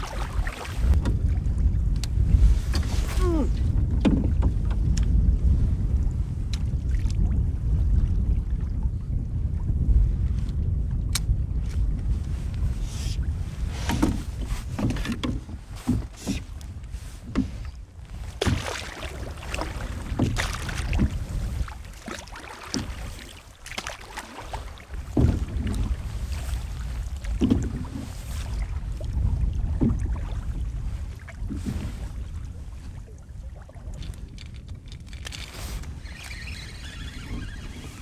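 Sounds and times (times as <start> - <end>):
paddle strokes splashing: 0.0 - 1.1, 12.6 - 38.0
wind rumble on microphone: 0.0 - 38.0.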